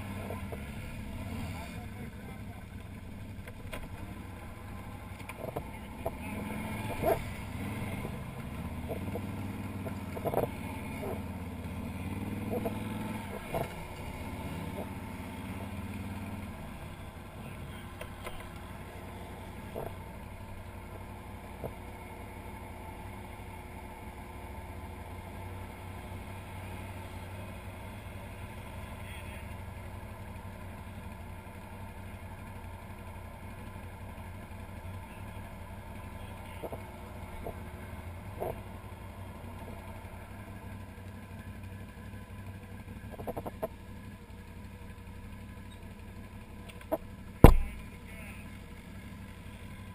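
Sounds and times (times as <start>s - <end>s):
atv engine idling: 0.0s - 49.9s.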